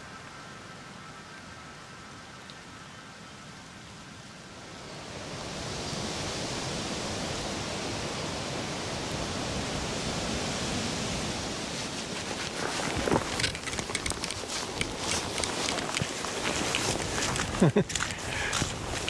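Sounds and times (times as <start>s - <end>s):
heavy rain hissing: 4.6s - 19.0s
microphone crackles: 11.9s - 19.0s.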